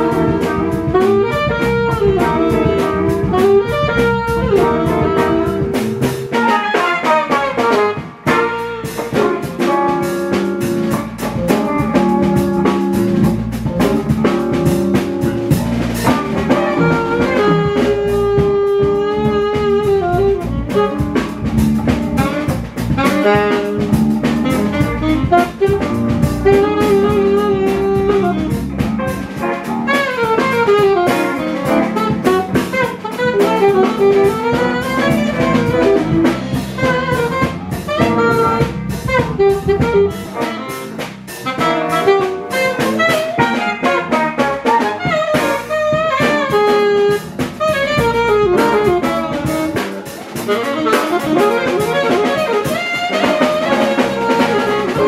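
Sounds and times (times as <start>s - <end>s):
drum kit: 0.0s - 55.0s
electric guitar: 0.0s - 55.0s
electric keyboard: 0.0s - 55.0s
saxophone lead lines: 0.0s - 55.0s.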